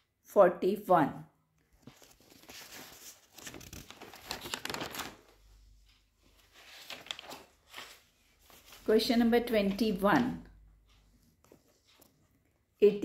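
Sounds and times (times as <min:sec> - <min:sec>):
rustling and crinkling handling: 0:01.6 - 0:09.9.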